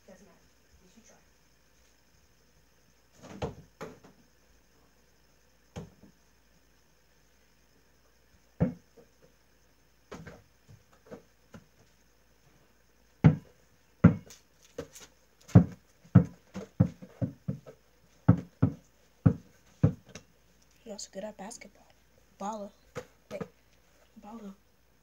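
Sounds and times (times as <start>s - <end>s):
ball bouncing on floor: 3.2s - 4.2s, 5.7s - 6.1s, 8.6s - 9.1s, 10.1s - 11.8s, 13.2s - 20.2s, 22.9s - 23.6s.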